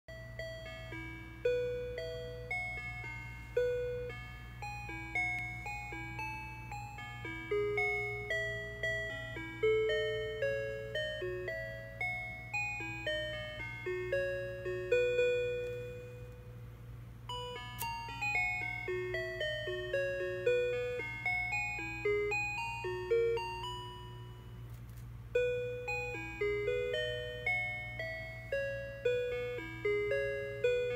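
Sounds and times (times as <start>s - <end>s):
electronic bell-like melody: 0.1s - 24.7s, 25.3s - 30.9s
steady low hum: 0.1s - 30.9s.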